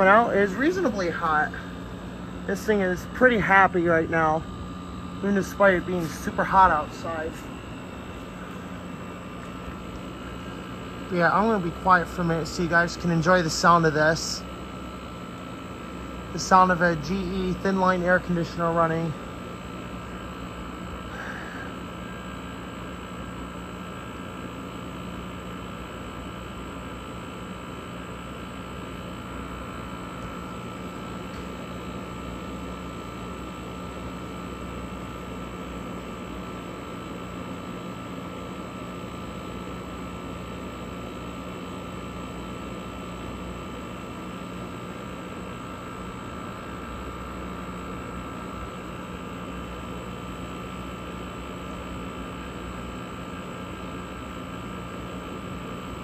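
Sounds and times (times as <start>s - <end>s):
air conditioner fan blowing: 0.0s - 56.0s.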